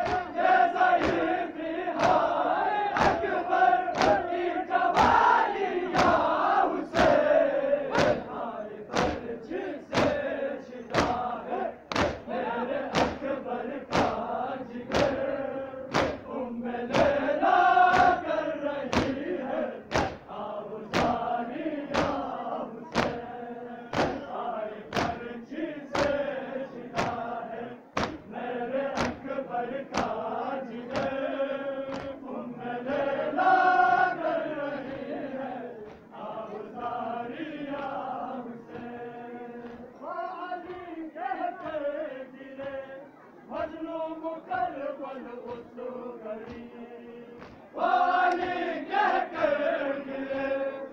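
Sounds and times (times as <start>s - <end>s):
crowd of men chanting: 0.0s - 50.9s
chest beating thumps: 11.9s - 12.3s, 23.9s - 24.3s.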